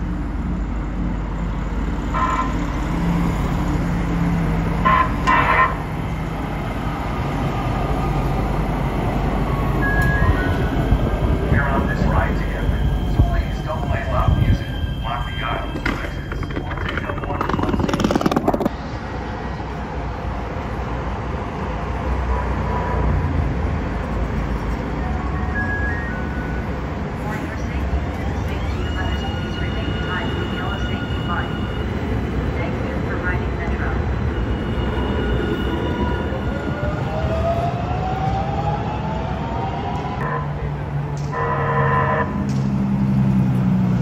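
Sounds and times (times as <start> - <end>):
low train rumble: 0.0 - 41.4
train motor whine: 14.1 - 18.7.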